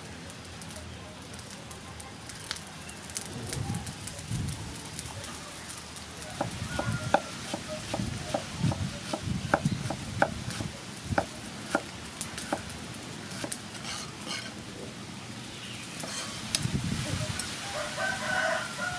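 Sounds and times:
cleaver chopping on wooden board: 0:06.4 - 0:12.7.

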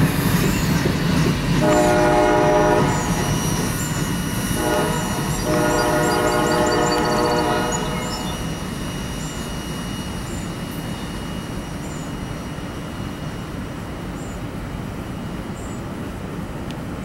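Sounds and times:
freight train rumbling: 0:00.0 - 0:17.0
thin high tone: 0:02.9 - 0:14.4.

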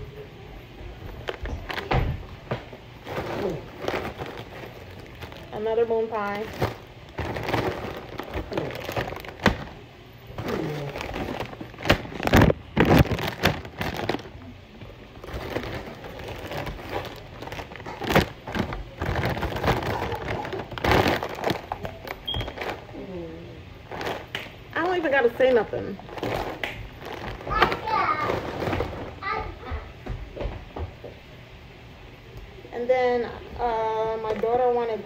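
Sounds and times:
plastic bags rustling and crinkling: 0:01.0 - 0:23.2, 0:23.8 - 0:29.3.

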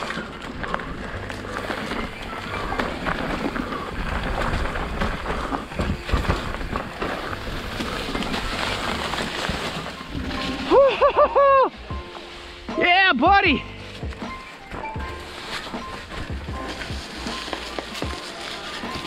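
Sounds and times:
bike rattling knocks: 0:00.0 - 0:10.8
bike tyre noise: 0:00.0 - 0:19.0.

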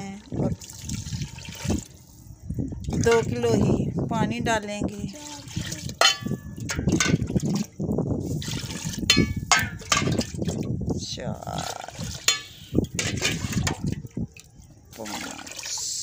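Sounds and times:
water pouring into a steel pot: 0:00.0 - 0:02.0, 0:05.1 - 0:10.8, 0:11.4 - 0:16.0
metal clinking on metal: 0:06.0 - 0:07.2.

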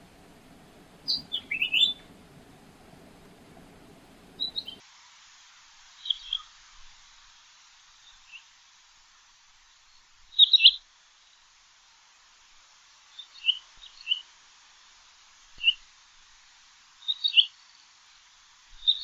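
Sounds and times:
steady background hiss: 0:00.0 - 0:19.0
quail whistled calls: 0:01.0 - 0:02.1, 0:04.3 - 0:04.8.

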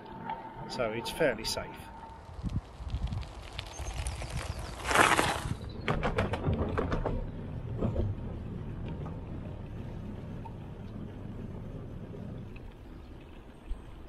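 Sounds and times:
steady low rumble: 0:00.0 - 0:05.2, 0:07.2 - 0:14.0
wind noise on microphone: 0:02.1 - 0:07.0.

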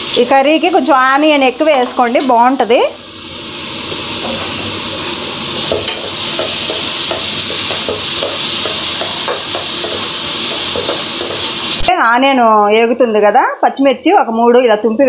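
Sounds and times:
onions sizzling in oil: 0:00.0 - 0:12.4
spoon scraping: 0:03.9 - 0:11.7.

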